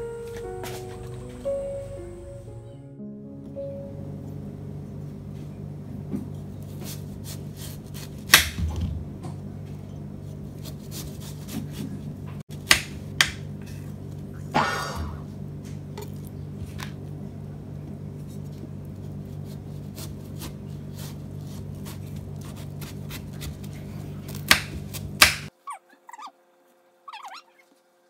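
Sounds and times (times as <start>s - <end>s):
low hum: 0.0s - 25.2s
knife cutting through watermelon: 6.7s - 8.7s, 10.3s - 12.1s, 19.3s - 25.5s
faint high squeaky sounds: 25.6s - 26.4s, 27.0s - 27.8s.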